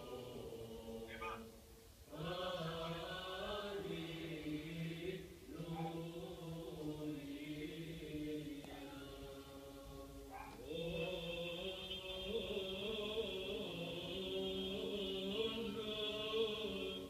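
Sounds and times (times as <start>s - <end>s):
slow chanted vocal music: 0.0s - 17.0s.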